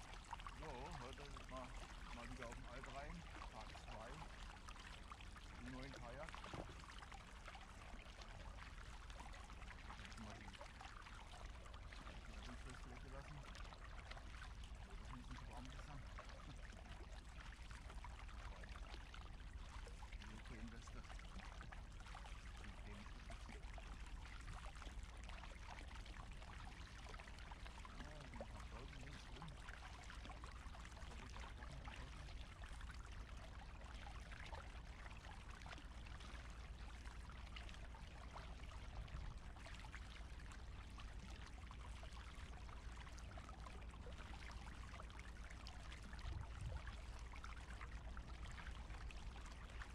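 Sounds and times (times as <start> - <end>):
kayak paddle splashing: 5.6 - 7.2.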